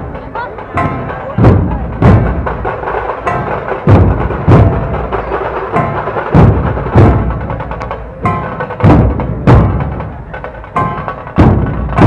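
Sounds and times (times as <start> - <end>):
dhol drums booming: 0.0 - 12.0
rapid rattle of drums: 0.0 - 12.0.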